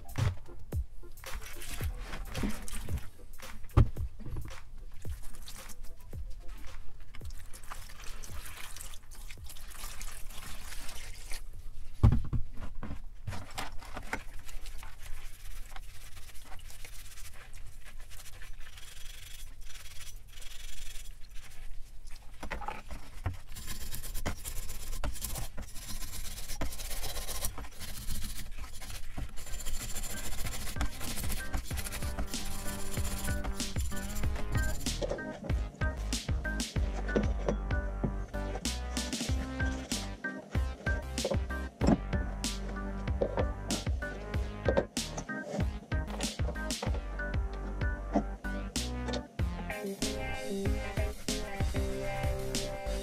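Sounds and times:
scrubbing wet metal: 0:04.4 - 0:12.0, 0:13.5 - 0:48.4, 0:50.0 - 0:53.0
water pouring into plastic tub: 0:07.2 - 0:11.5.

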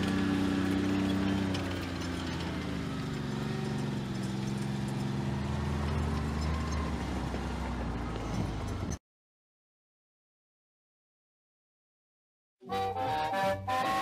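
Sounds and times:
tank engine running: 0:00.0 - 0:09.0, 0:12.7 - 0:14.0.

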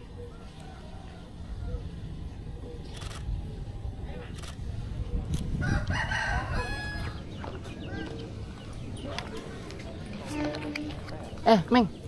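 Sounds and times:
rooster crowing: 0:00.3 - 0:01.9, 0:05.6 - 0:07.2.

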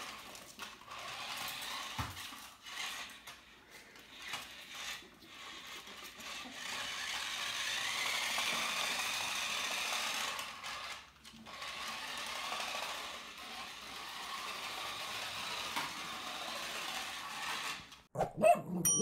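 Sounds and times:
toy car motor whirring: 0:00.0 - 0:18.1.

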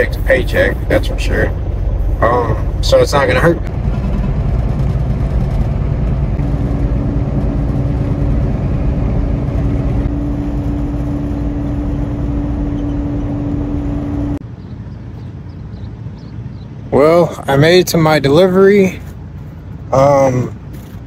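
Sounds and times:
truck road and engine rumble: 0:00.0 - 0:21.0
quiet outdoor background: 0:10.0 - 0:21.0.

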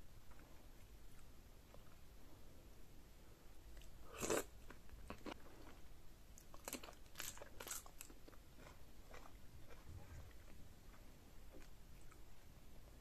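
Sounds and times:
crunchy chewing: 0:03.8 - 0:05.8, 0:06.4 - 0:12.3.

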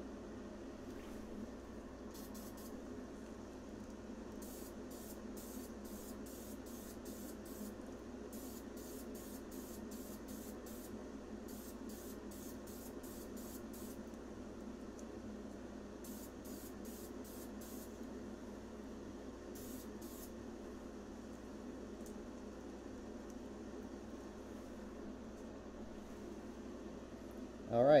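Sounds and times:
extraction fan humming: 0:00.0 - 0:28.0
aerosol spray hissing bursts: 0:02.1 - 0:02.7, 0:04.4 - 0:07.8, 0:08.4 - 0:14.0, 0:16.0 - 0:18.0, 0:19.6 - 0:20.3.

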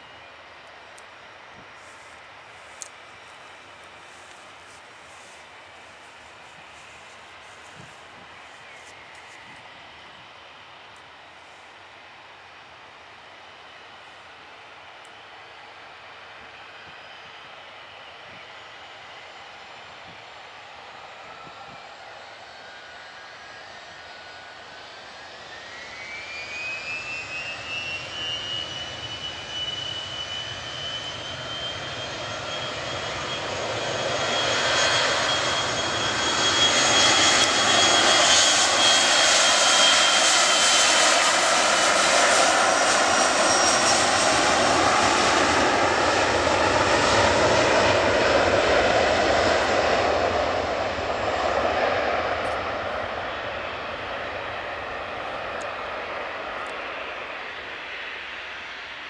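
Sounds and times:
jet engine whine: 0:00.0 - 0:59.0
jet engine rush: 0:16.0 - 0:59.0.

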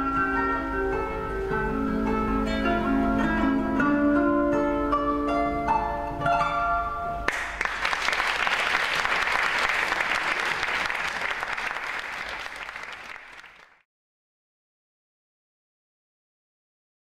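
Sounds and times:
plucked zither notes: 0:00.0 - 0:07.3
audience applause: 0:07.3 - 0:13.8.

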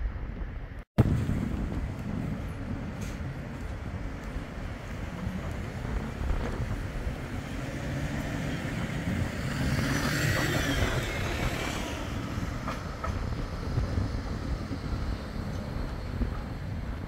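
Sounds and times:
tram electric drive whining: 0:00.2 - 0:17.0
wheels clicking on track: 0:01.6 - 0:17.0.

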